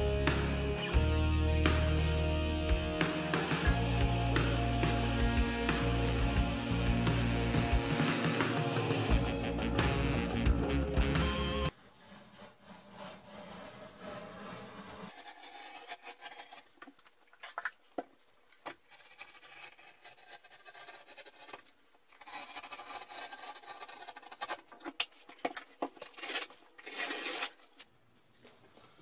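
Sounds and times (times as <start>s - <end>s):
loud rasp of drywall: 11.7s - 17.0s, 18.6s - 27.8s
scratching and scraping drywall: 11.7s - 27.9s.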